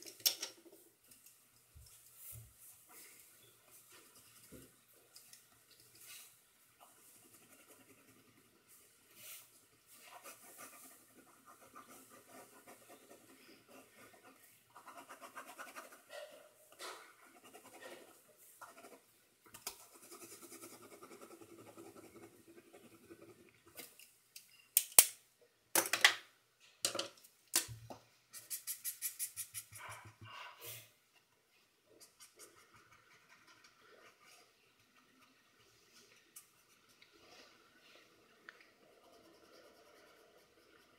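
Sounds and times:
pen nib scratching on paper: 7.1 - 8.6, 28.4 - 30.2, 32.0 - 34.5, 38.9 - 40.9.

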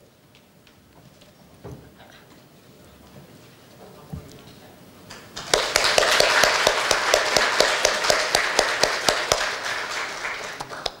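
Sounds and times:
audience applauding: 5.1 - 11.0
sharp individual claps: 5.1 - 11.0.

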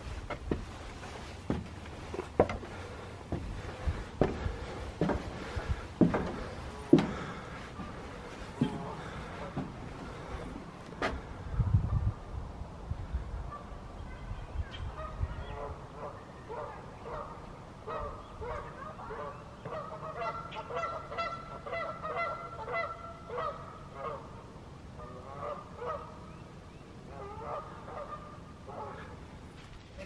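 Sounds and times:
geese honking: 14.8 - 26.3, 27.0 - 29.3.

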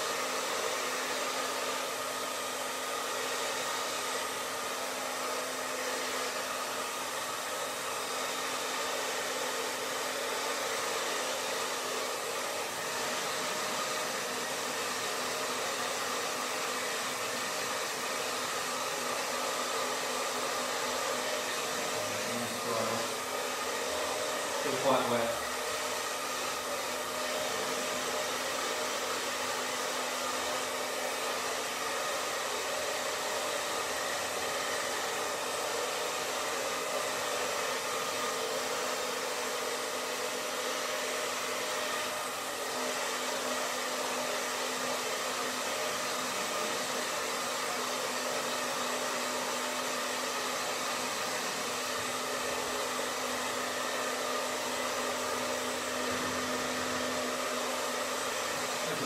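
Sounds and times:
hair dryer running: 0.0 - 59.0.

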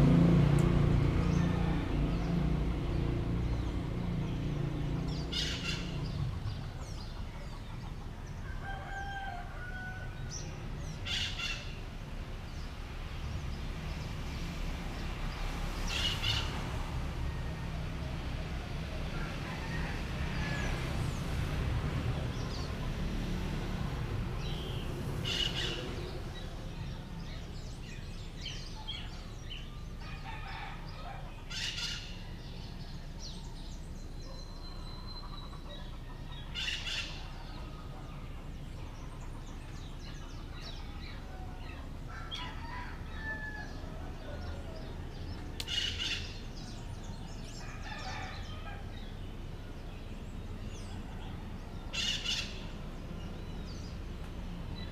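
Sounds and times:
birds chirping: 0.0 - 54.9
distant traffic hum: 0.0 - 54.9
loud short bird calls: 5.2 - 6.4.

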